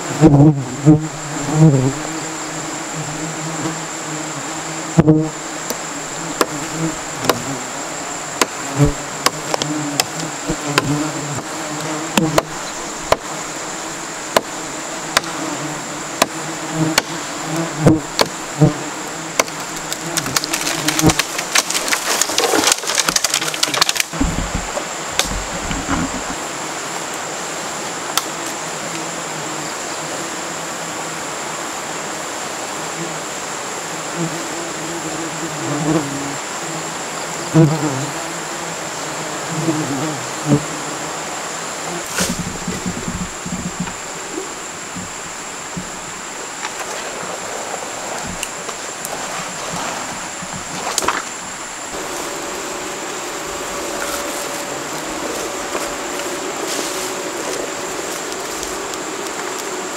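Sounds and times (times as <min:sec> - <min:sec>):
insects buzzing: 0:00.0 - 0:59.9
crackling clicks: 0:19.4 - 0:26.4, 0:57.5 - 0:59.7
sharp clicks and knocks: 0:19.4 - 0:26.4.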